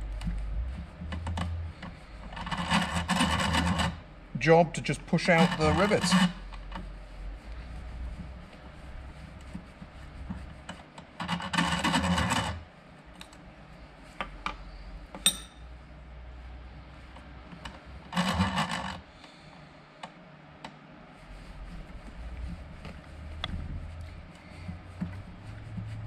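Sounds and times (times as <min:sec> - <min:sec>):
rivet tool scraping grind: 0:00.2 - 0:04.0, 0:04.6 - 0:06.9, 0:10.6 - 0:12.6, 0:17.6 - 0:19.1
metal parts clicking and rubbing: 0:01.1 - 0:04.0, 0:04.8 - 0:06.8, 0:11.2 - 0:12.6
sharp metallic clink: 0:15.2 - 0:15.6.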